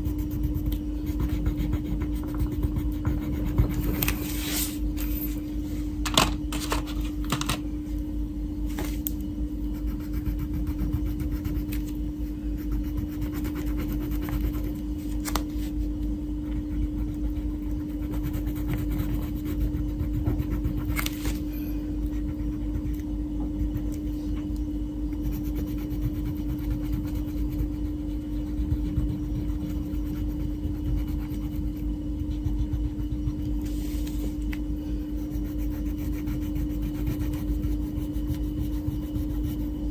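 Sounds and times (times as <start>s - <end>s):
steady low hum: 0.0s - 39.9s
crayon scraping on paper: 35.2s - 39.7s.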